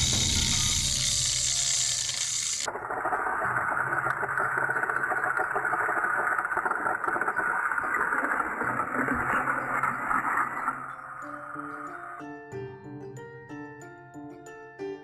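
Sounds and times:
toy train motors whirring: 0.0 - 6.7.

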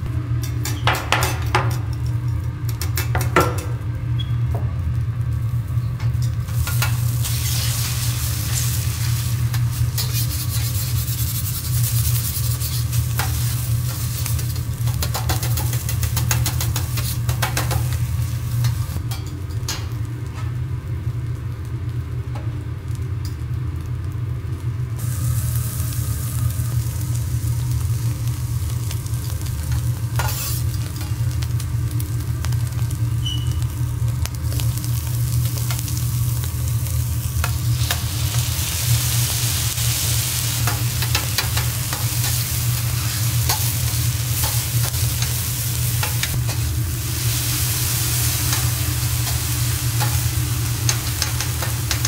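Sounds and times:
rice sizzling on a griddle: 4.8 - 52.0
metal spatulas scraping: 9.1 - 17.8, 30.2 - 30.8
low hum: 15.9 - 52.0.

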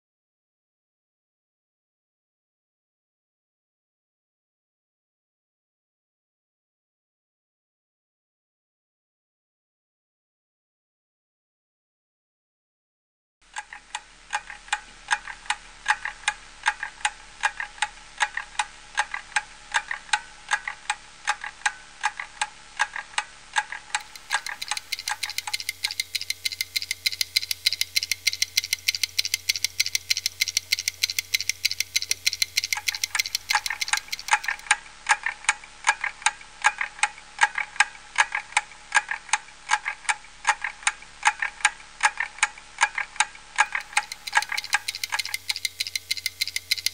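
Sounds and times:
wall clock ticking: 13.5 - 46.9.

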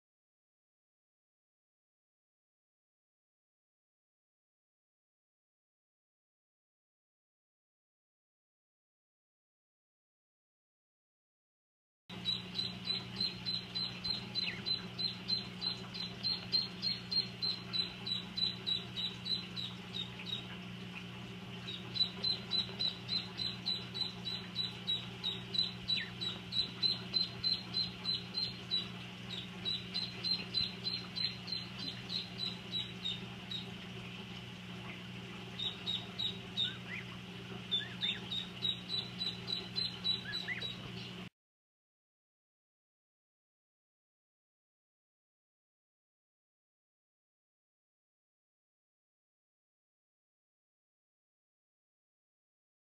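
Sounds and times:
chicks peeping: 12.2 - 20.8, 21.6 - 33.8, 34.9 - 41.2.

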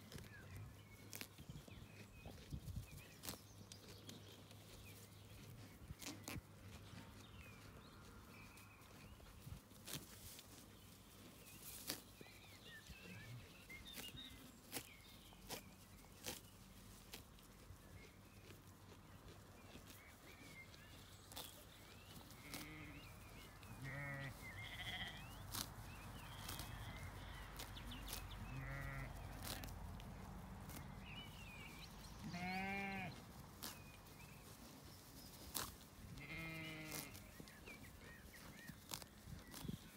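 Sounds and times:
sheep tearing grass: 0.0 - 39.9
small birds chirping: 0.0 - 39.9
sheep bleating: 22.4 - 23.0, 23.7 - 25.4, 28.4 - 29.7, 32.2 - 33.2, 36.2 - 37.3.

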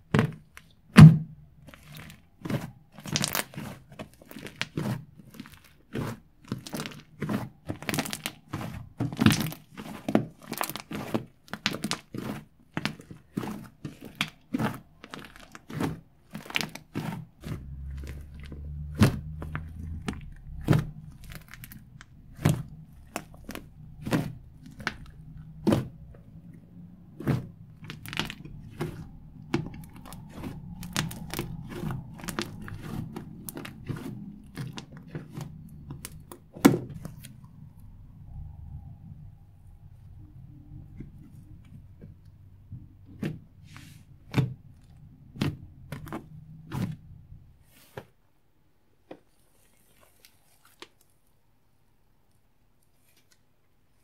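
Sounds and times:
slime crackling and popping: 0.1 - 38.5, 44.2 - 47.9.

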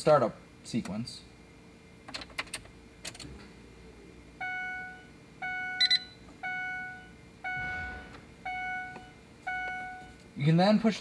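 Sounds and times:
high double beep: 4.4 - 10.1
dashboard warning chime dinging: 4.4 - 10.2.

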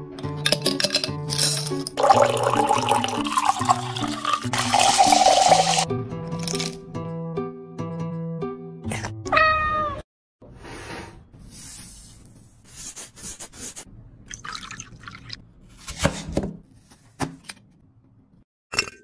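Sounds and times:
cat meowing: 9.3 - 10.0.

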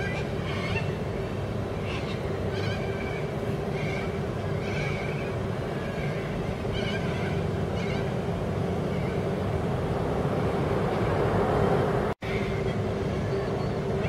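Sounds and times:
cockatoo calls: 0.0 - 1.0, 1.7 - 9.2
constant low hum: 0.0 - 14.0
road traffic rumble: 0.0 - 14.0.

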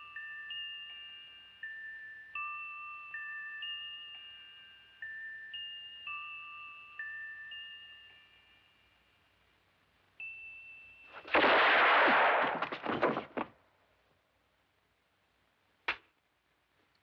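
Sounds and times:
pocket watch chime: 0.0 - 9.2, 10.2 - 11.3
sharp crack: 11.2 - 13.6, 15.8 - 16.2
echoing revolver shot: 11.3 - 12.8.

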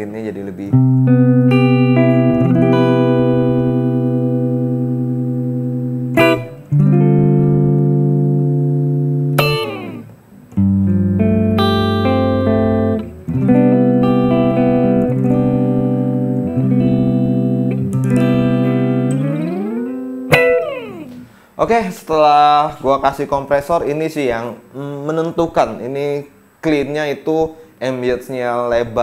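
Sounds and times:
clean electric guitar chords: 0.7 - 21.4.

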